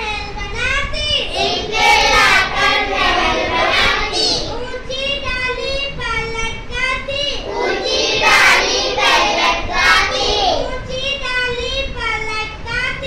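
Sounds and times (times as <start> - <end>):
children singing a rhyme: 0.0 - 13.0.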